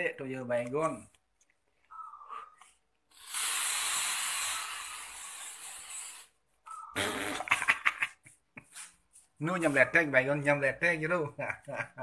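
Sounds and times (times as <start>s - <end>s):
aerosol can spraying hiss: 3.1s - 6.3s.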